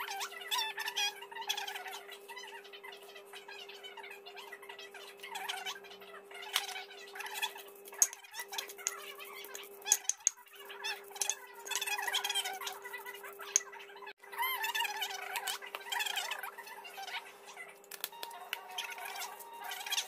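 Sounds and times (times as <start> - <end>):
pestle scraping in stone mortar: 7.9 - 10.4.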